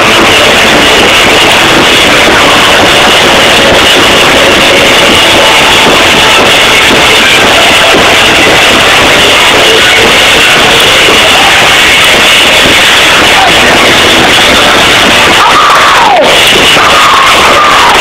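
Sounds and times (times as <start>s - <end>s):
distorted live rock band: 0.0s - 18.0s
drum kit: 0.0s - 18.0s.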